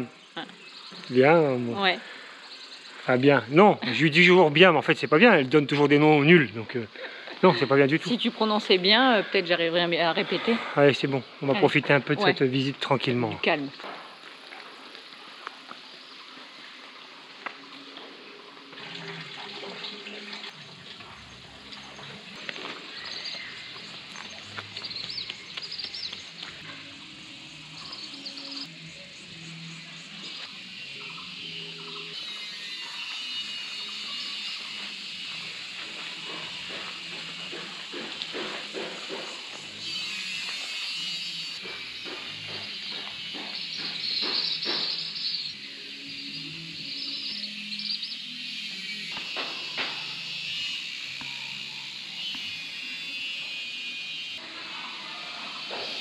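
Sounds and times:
insects chirring: 0.0s - 56.0s
steady outdoor hiss: 0.0s - 56.0s
small birds chirping: 21.2s - 35.5s, 41.0s - 48.3s.

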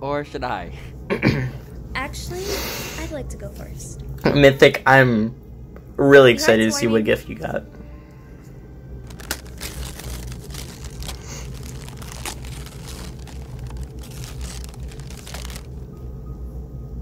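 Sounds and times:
low steady hum: 0.0s - 17.0s
wrapping paper crinkling and tearing: 9.0s - 15.8s.

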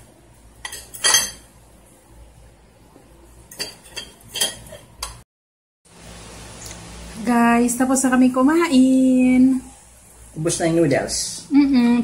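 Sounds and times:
cutlery clinking on a plate: 0.6s - 1.5s, 3.5s - 5.2s.

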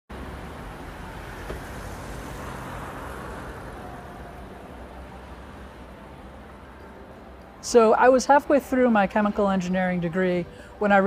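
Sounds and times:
distant road traffic rumble: 0.1s - 11.0s.

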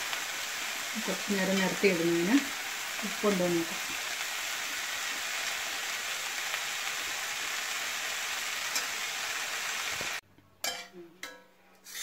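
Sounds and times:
vegetables sizzling in a metal pan: 0.0s - 12.0s.

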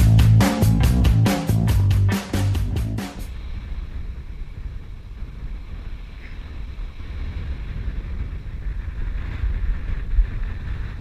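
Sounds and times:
wind buffeting microphone: 3.2s - 11.0s.

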